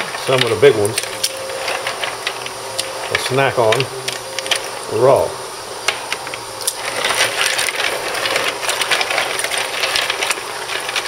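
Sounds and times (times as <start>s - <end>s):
clams clacking together: 5.9s - 11.0s.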